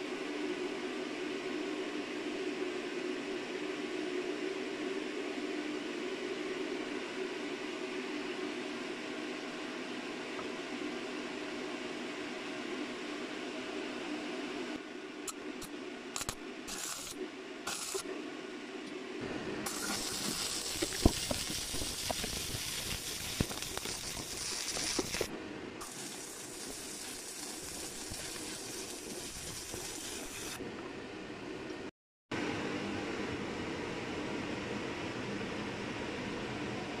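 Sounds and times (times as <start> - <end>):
arc welding crackling hiss: 16.2 - 18.0, 19.7 - 30.6
welding arc strikes: 16.2 - 18.0, 19.7 - 30.6.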